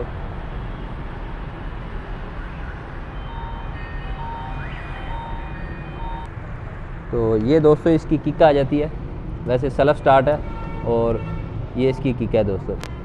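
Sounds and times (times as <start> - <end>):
electronic tune of short beeps: 3.2 - 6.3.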